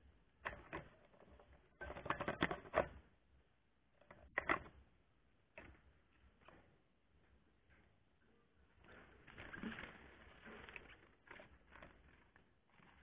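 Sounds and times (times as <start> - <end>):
bubble wrap and cardboard crinkling: 8.8 - 13.0.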